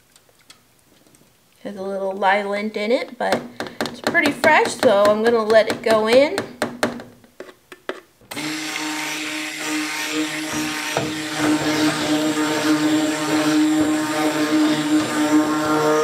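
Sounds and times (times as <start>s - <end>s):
stick blender running: 8.3s - 16.0s.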